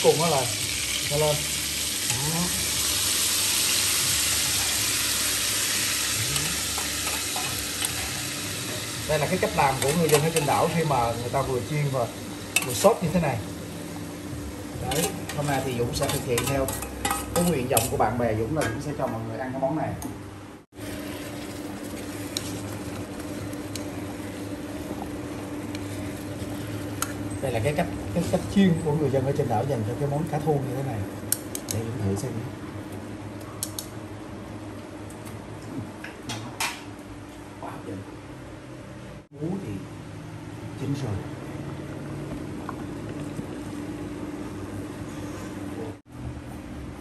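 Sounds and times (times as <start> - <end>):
hot oil sizzling in a wok: 0.0 - 18.0.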